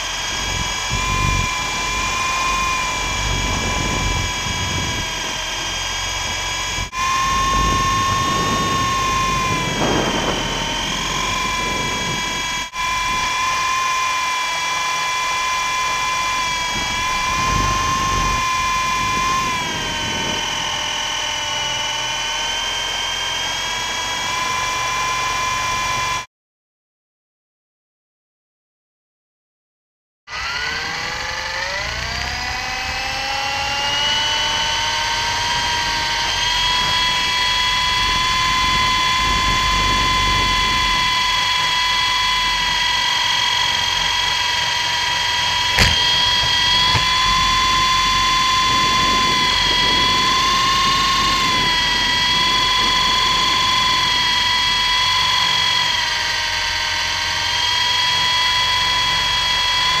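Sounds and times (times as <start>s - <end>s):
rc helicopter motor whine: 0.0s - 26.3s, 30.3s - 60.0s
wind gusts on microphone: 0.2s - 13.5s, 16.3s - 20.8s, 45.8s - 54.8s.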